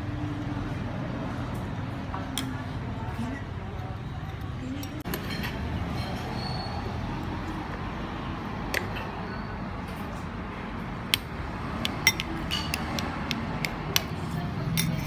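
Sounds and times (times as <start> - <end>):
steady background noise: 0.0 - 15.0
metal spoon clinking on ceramic: 11.8 - 13.4, 14.7 - 15.0.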